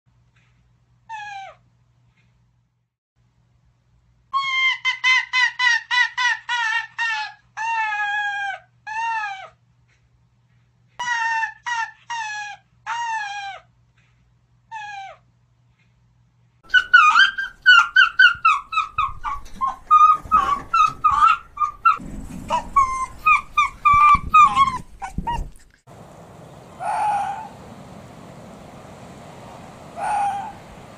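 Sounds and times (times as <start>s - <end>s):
low background noise: 0.1s - 30.9s
rapid chattering yelps: 16.6s - 25.6s, 26.8s - 27.6s, 29.9s - 30.8s
fox barking: 16.7s - 25.5s, 26.8s - 27.6s, 29.8s - 30.8s.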